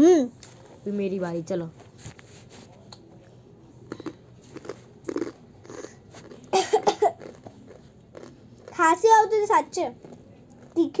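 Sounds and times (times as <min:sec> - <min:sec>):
chewing crunchy chips: 0:03.8 - 0:09.0
person coughing: 0:06.5 - 0:07.3.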